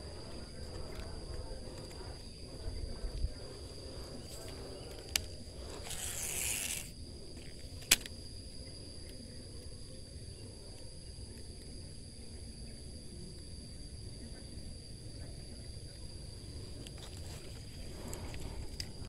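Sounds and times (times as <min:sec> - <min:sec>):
fishing reel whir: 0:00.0 - 0:08.4
insects droning: 0:00.0 - 0:19.0
fishing reel clicks: 0:04.5 - 0:08.2.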